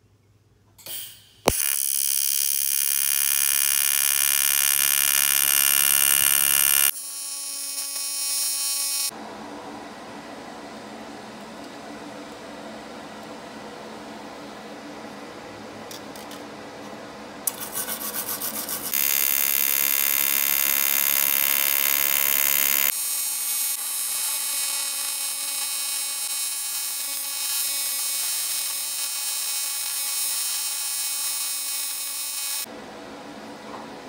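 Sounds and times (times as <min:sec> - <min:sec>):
welding arc striking click: 0:00.8 - 0:06.9
welding arc buzzing hiss: 0:00.8 - 0:09.1, 0:17.5 - 0:32.7.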